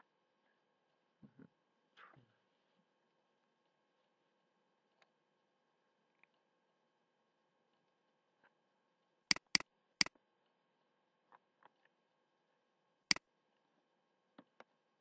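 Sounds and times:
faint ticks: 9.3 - 9.6
mouse button clicks: 9.3 - 9.6.

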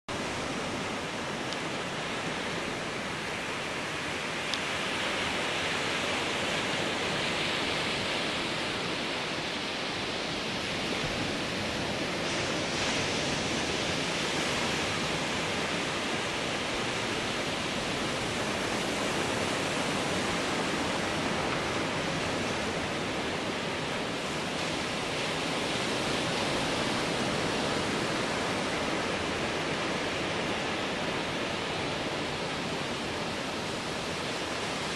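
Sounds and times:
ocean surf breaking: 0.1 - 34.9.

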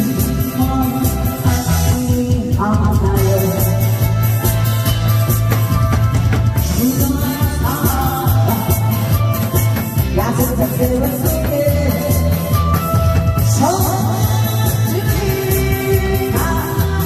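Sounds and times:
person singing: 0.0 - 4.4, 6.6 - 17.0
steady drum beat: 0.0 - 17.0.

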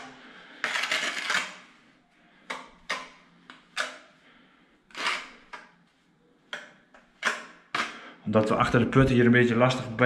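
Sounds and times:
trowel scraping adhesive: 0.0 - 1.6, 4.9 - 5.6.

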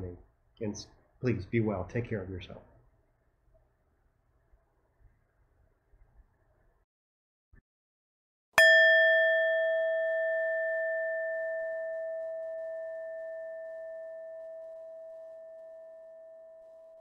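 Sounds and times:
singing bowl ringing: 8.6 - 17.0.

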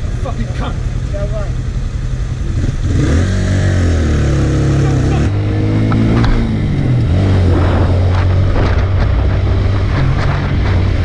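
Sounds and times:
motorcycle engine running: 0.0 - 11.0
wind rushing over microphone: 5.3 - 11.0.

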